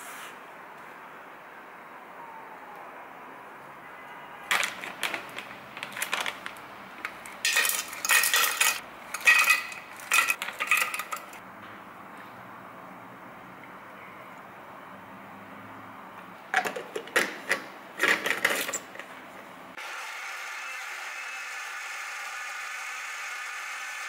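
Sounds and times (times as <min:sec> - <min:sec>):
plastic bag rustling: 0:04.5 - 0:08.8
frozen berries clattering into glass jar: 0:07.5 - 0:11.4.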